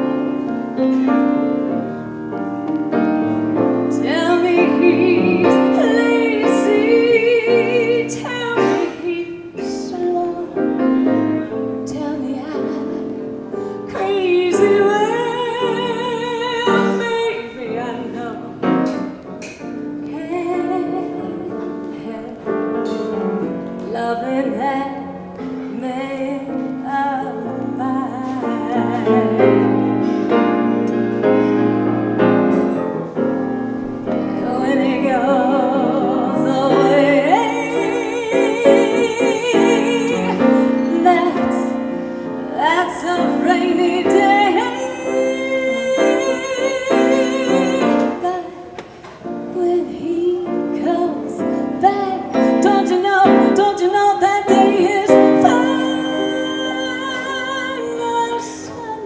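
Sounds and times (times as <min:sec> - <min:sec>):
piano accompaniment: 0:00.0 - 0:59.0
woman singing operatically: 0:03.9 - 0:11.2, 0:13.9 - 0:18.6, 0:23.8 - 0:29.8, 0:34.3 - 0:41.8, 0:42.5 - 0:48.8, 0:49.5 - 0:59.0.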